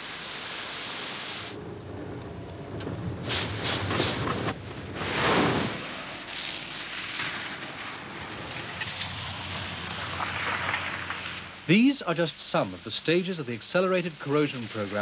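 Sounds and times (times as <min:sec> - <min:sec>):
water spray rushing over car: 0:05.2 - 0:15.0
car engine driving: 0:07.0 - 0:11.8.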